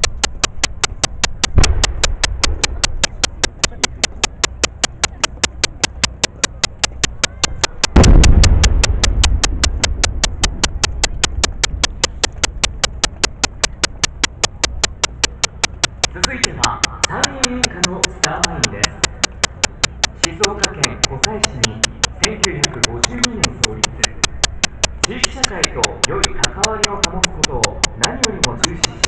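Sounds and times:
rapid clicking: 0.0 - 29.0
firework shells booming: 1.5 - 3.1, 7.9 - 10.6.

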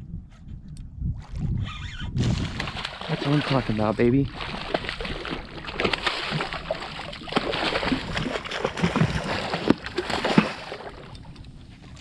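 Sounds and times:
fish splashing at water surface: 2.4 - 11.1.

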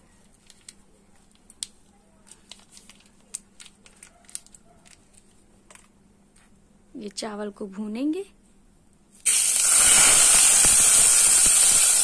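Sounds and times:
plastic sachet crinkling: 0.2 - 5.9.

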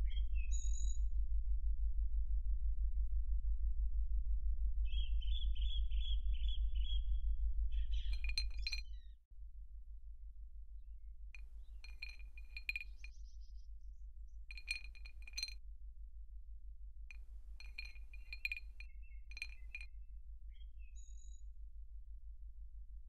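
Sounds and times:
glassy clinks and chimes: 8.1 - 8.8, 11.8 - 13.1, 14.5 - 15.6, 17.6 - 19.8.

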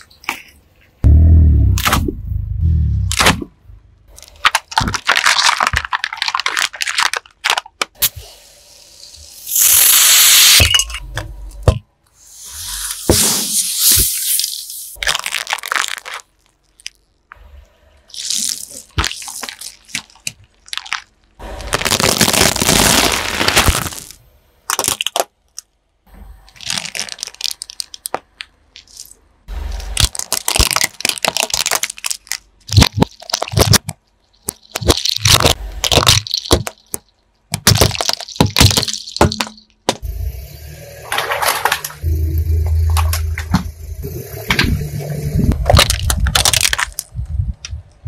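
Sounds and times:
car tyre crushing objects: 0.0 - 8.1, 18.1 - 25.8, 26.5 - 47.2.

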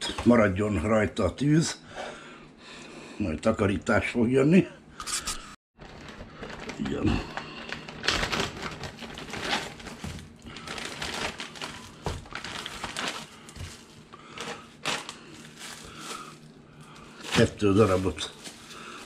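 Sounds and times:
rustling: 5.8 - 19.0.

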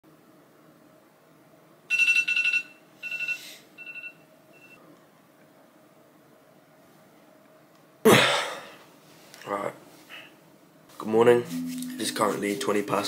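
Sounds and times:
phone alarm beeping: 1.9 - 4.8.

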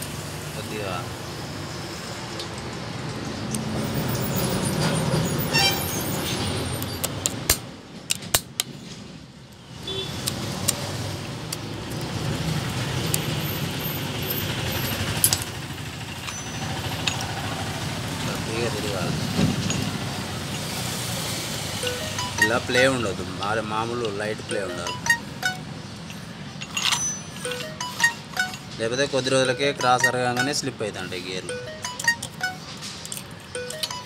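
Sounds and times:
traffic rumble: 0.0 - 34.0
metallic clicks of circlip pliers: 6.8 - 8.8, 15.2 - 15.5.

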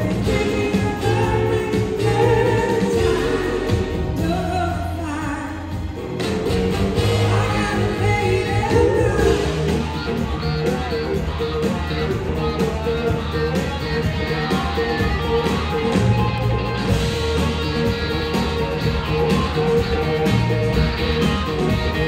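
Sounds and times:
person singing: 0.0 - 5.8, 7.0 - 11.2
live blues-rock band: 0.0 - 22.0.

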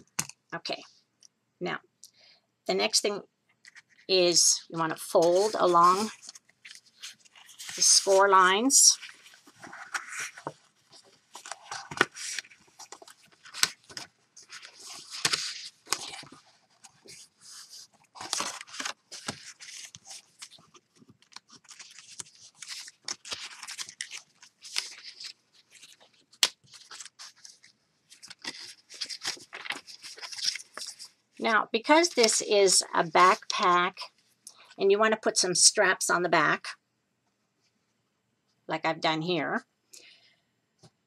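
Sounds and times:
paper rustling and crinkling: 5.0 - 31.2, 31.9 - 32.5.

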